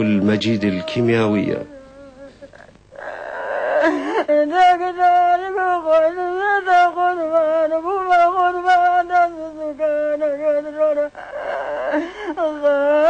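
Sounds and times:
woman keening a lament: 0.0s - 13.0s.

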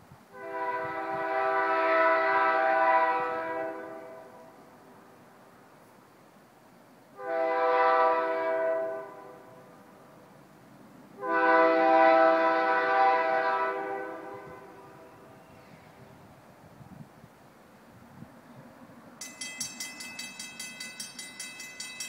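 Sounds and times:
locomotive air horn blasts: 0.3s - 4.6s, 7.2s - 9.7s, 11.2s - 15.7s.

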